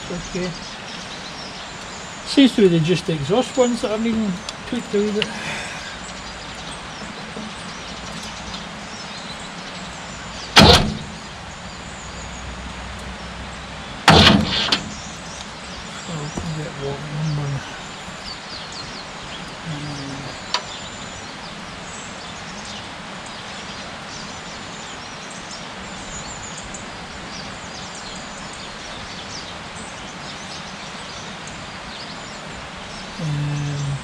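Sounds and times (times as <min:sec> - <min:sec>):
birds chirping: 0:00.0 - 0:34.0
outdoor background hiss: 0:00.0 - 0:34.0
sharp click: 0:10.6 - 0:11.2, 0:14.1 - 0:15.5
low murmur of a voice: 0:19.5 - 0:20.5, 0:33.1 - 0:34.0.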